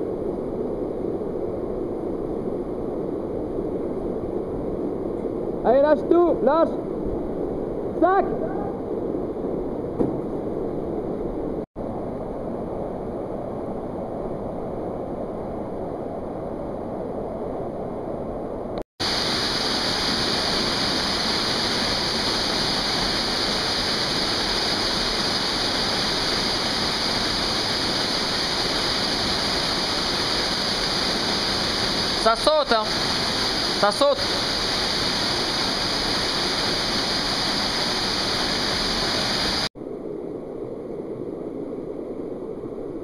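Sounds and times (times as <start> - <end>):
waterfall rushing into a pool: 19.0 - 39.7.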